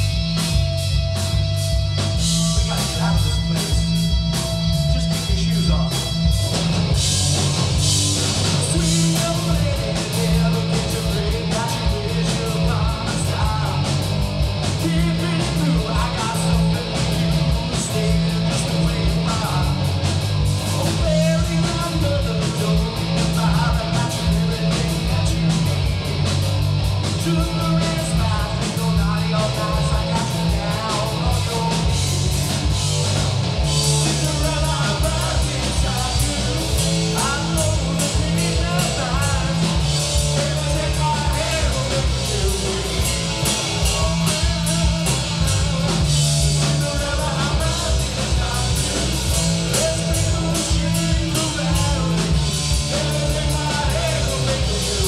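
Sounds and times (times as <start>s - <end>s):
drum kit: 0.0s - 55.0s
electric guitar: 0.0s - 55.0s
low bass notes: 0.0s - 55.0s.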